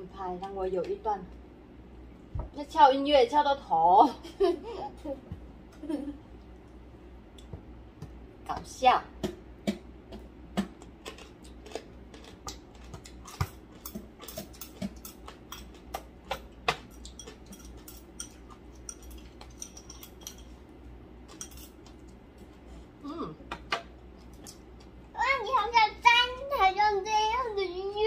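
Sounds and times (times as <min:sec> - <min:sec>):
chewing and mouth sounds: 0:09.2 - 0:20.2
chopsticks clicking on bowls: 0:11.0 - 0:20.5.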